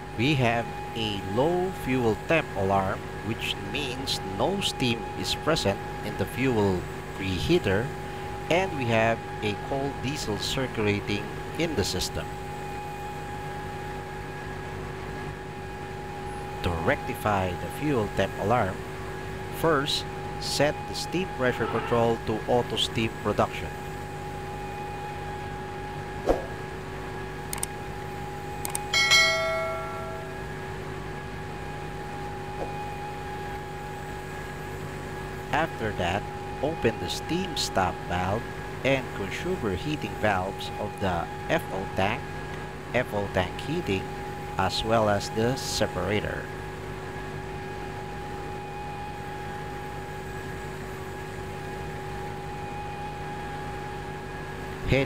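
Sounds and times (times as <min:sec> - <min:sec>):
constant tonal whine: 0:00.0 - 0:55.0
steady background hum: 0:00.0 - 0:55.0
sharp clicks: 0:27.5 - 0:27.8, 0:28.6 - 0:28.9
bell chime: 0:28.9 - 0:30.5.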